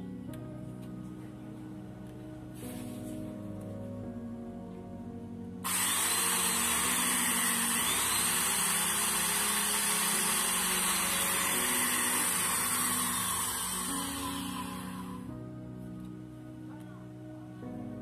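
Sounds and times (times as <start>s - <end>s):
faint background music: 0.0s - 18.0s
electric drill whining: 5.6s - 15.3s.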